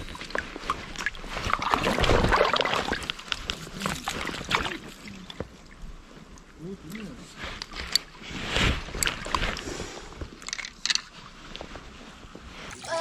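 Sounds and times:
water splashing and sloshing: 0.0 - 12.9
fishing tackle clicks and knocks: 7.6 - 8.1, 10.2 - 11.2.

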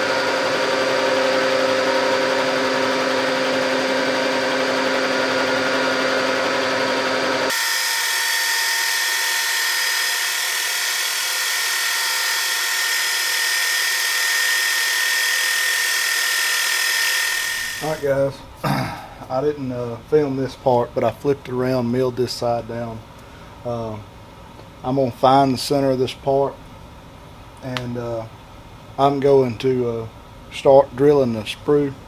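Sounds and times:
milling machine whining: 0.0 - 18.1.

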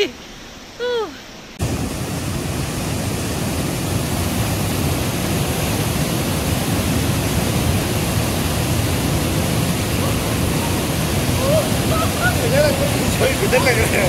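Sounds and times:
waterfall rushing into pool: 0.0 - 14.0.

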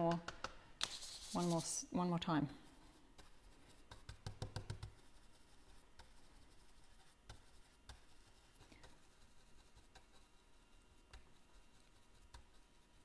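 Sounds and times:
stencil brush dabbing on wood: 0.0 - 13.0.

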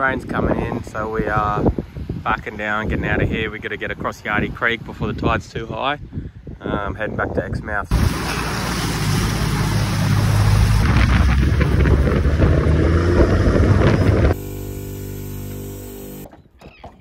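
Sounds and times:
wind buffeting microphone: 0.0 - 14.4
water splashing off tyres: 7.9 - 14.7
engine drone: 7.9 - 16.3.

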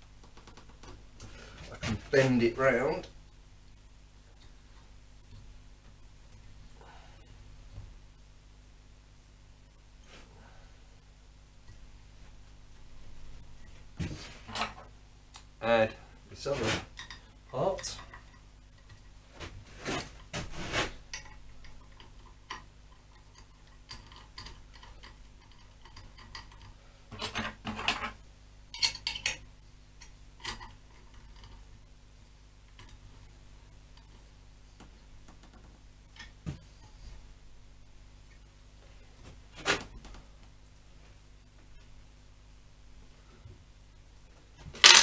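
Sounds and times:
metal parts clinking: 28.8 - 29.4, 44.8 - 45.0.

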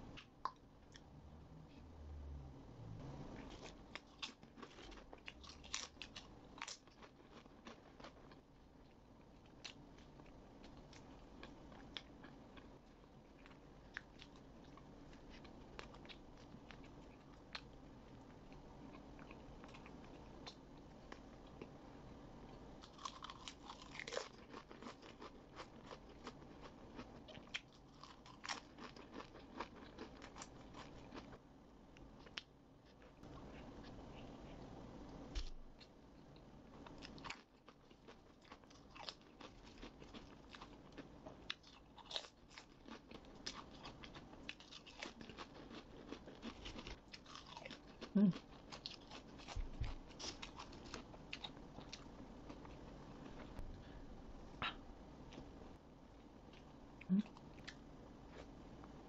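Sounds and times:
quiet chewing: 3.4 - 21.8, 32.0 - 55.6
potato chips crunching: 22.8 - 31.3, 36.9 - 52.7.

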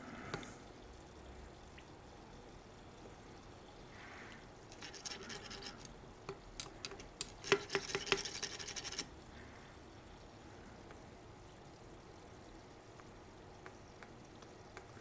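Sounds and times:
faint scraping and rubbing: 4.0 - 5.9.

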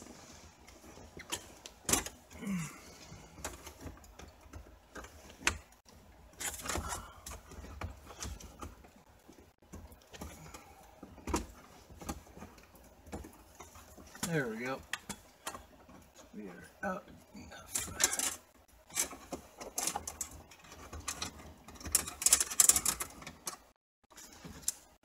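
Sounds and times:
car stereo clicks and rattles: 17.7 - 23.7.

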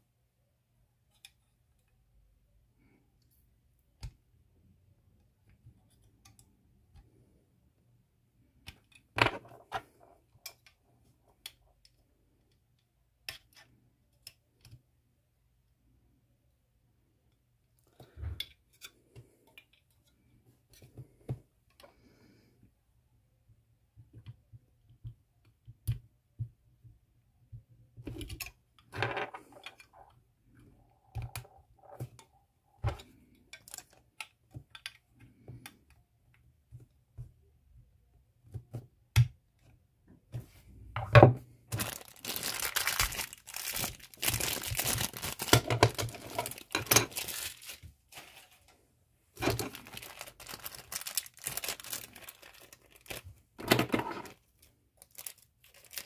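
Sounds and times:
plastic wrapper crinkling: 41.7 - 48.7, 49.4 - 53.4, 54.2 - 56.0.

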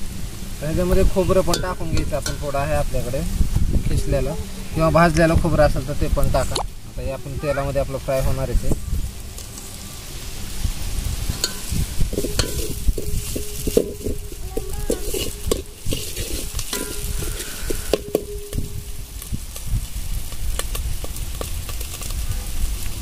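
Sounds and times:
faint sizzle of frying: 0.0 - 23.0
metal ladle scraping a pot: 1.0 - 3.1, 11.2 - 19.0
ladle clinking on metal pot: 1.5 - 2.8, 11.4 - 19.0.

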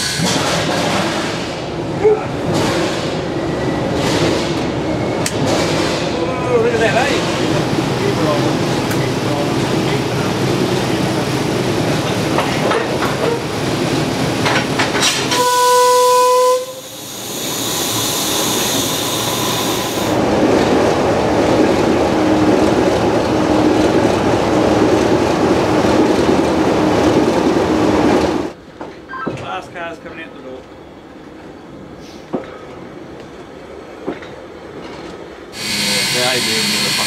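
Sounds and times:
steady rush of steam and machinery: 0.0 - 15.2, 16.6 - 23.0, 35.4 - 37.0
steam whistle blast: 15.3 - 20.1, 35.6 - 37.0
loud hiss of escaping steam: 16.7 - 20.2, 35.6 - 37.0.

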